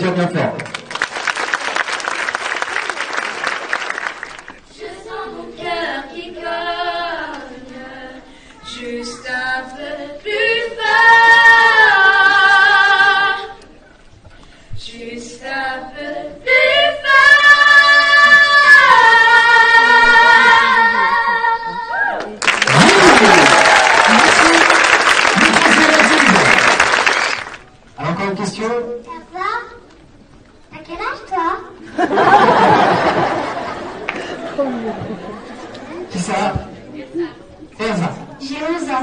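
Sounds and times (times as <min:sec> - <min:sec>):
applause: 0:00.5 - 0:04.6, 0:22.3 - 0:27.7, 0:34.0 - 0:34.3
children singing a cappella: 0:04.7 - 0:13.7, 0:14.8 - 0:21.9.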